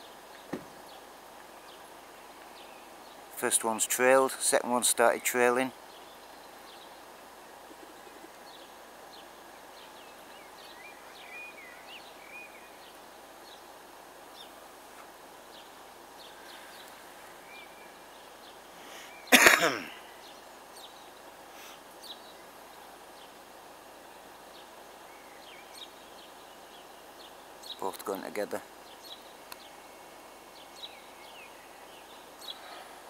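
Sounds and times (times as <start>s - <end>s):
outdoor background noise: 0.0s - 33.0s
faint bird chirps: 7.8s - 23.4s
person coughing: 19.3s - 20.0s.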